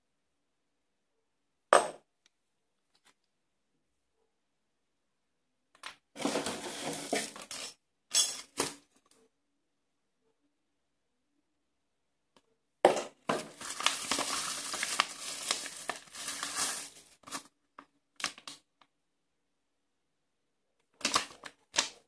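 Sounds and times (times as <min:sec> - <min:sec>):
paper rustling: 0:06.2 - 0:07.8, 0:13.4 - 0:17.5
plastic bag crinkling: 0:06.2 - 0:07.8, 0:13.3 - 0:17.5.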